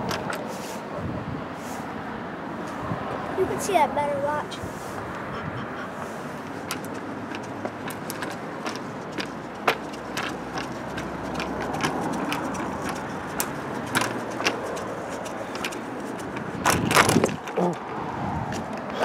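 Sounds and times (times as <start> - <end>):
scooter wheels rumbling on concrete: 0.0 - 1.2, 5.9 - 19.0
sharp clicks and clacks: 6.4 - 19.0.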